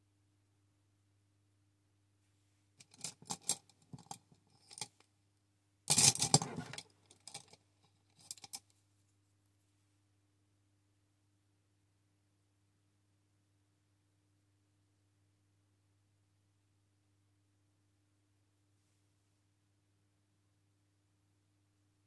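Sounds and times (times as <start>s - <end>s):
scraping clatter: 5.9s - 7.6s.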